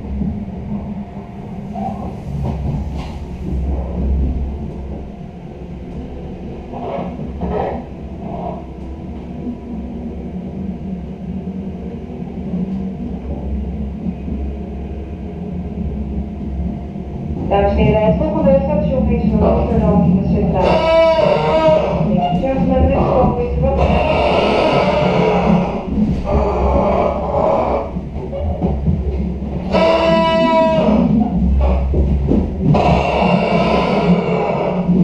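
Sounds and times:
train wheels rumbling on rail: 0:00.0 - 0:35.0.

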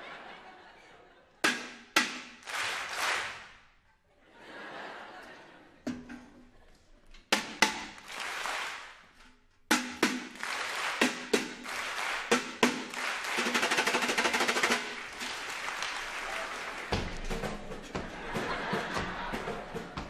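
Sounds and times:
audience applause: 0:02.4 - 0:03.5, 0:08.0 - 0:09.0, 0:10.3 - 0:20.0.

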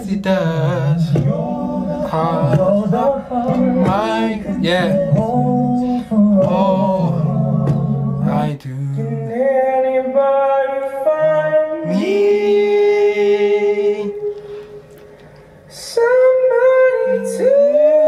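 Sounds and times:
low accompaniment: 0:00.0 - 0:09.7
voices singing: 0:00.0 - 0:18.0.

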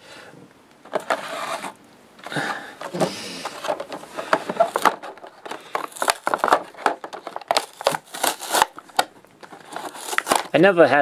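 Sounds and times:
plastic crinkling: 0:00.8 - 0:10.8
cardboard tearing: 0:00.9 - 0:01.8, 0:02.9 - 0:10.6.

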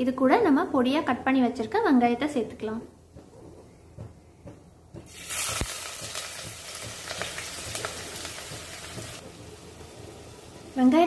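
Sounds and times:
onions sizzling in hot oil: 0:05.1 - 0:11.0.

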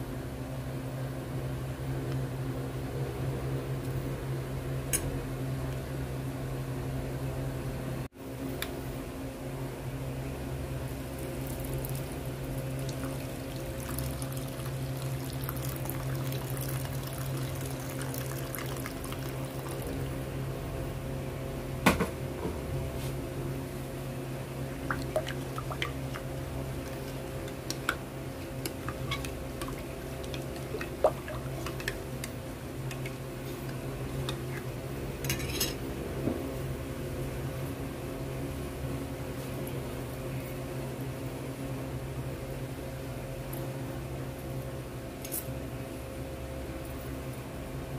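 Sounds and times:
steady mechanical hum: 0:00.0 - 0:47.9
water poured into a bowl: 0:11.4 - 0:20.1, 0:24.9 - 0:26.2
metal spoon stirring water: 0:28.6 - 0:32.0.

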